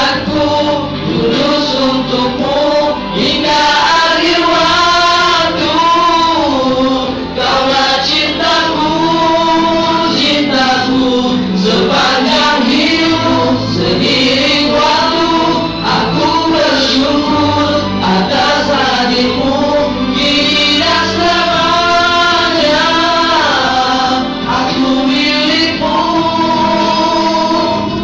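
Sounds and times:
male vocal group singing in harmony: 0.0 - 28.0.

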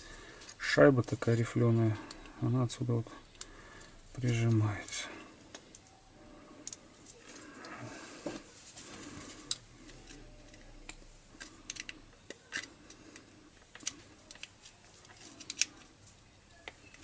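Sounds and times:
small metal and plastic parts clicking: 9.4 - 17.0.

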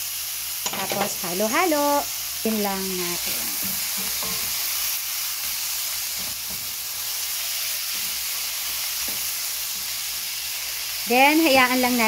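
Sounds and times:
meat sizzling in oil: 0.0 - 12.0
spatula stirring in pan: 3.0 - 11.0.

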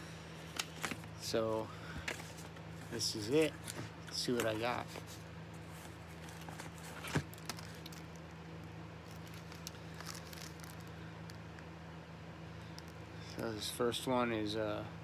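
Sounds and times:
low hum: 0.0 - 15.0
plastic cases handling: 2.0 - 8.3.

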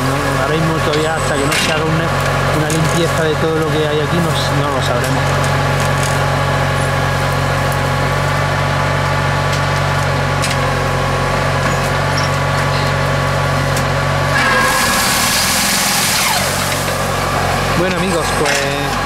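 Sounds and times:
machine engine humming: 0.0 - 19.0
loud hiss: 14.4 - 17.8.

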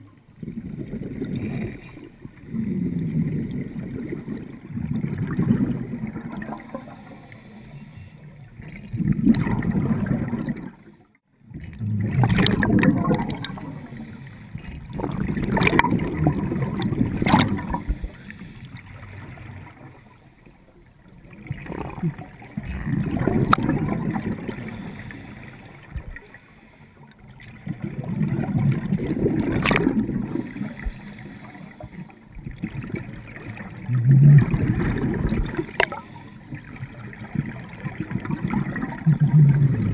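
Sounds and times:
bubbles rushing and gurgling: 0.0 - 39.9
diver breathing through regulator: 6.7 - 8.3, 17.6 - 18.8, 24.5 - 25.7, 30.2 - 32.2.

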